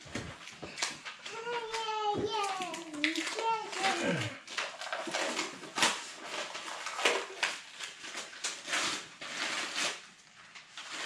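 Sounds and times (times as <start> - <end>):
objects being handled: 0.0 - 11.0.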